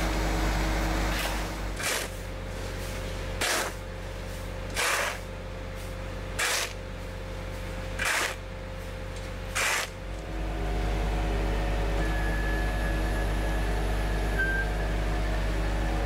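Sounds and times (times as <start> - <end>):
truck engine humming: 0.0 - 16.0
push broom sweeping asphalt: 1.1 - 5.3, 6.4 - 6.8, 8.0 - 8.4, 9.5 - 10.0.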